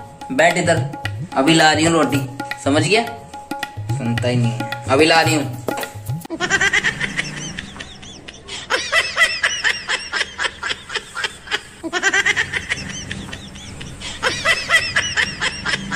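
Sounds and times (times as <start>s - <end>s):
squeaky cartoon laughter: 6.3s - 15.9s.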